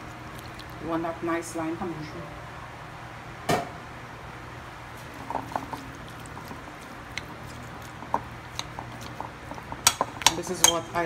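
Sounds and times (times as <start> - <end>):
low steady hum: 0.0 - 11.0
spoon scraping and tapping bowl: 5.2 - 10.9.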